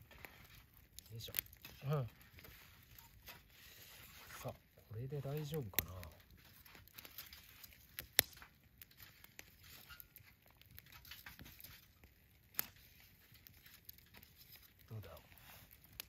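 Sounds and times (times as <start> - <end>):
campfire crackling: 0.0 - 16.0.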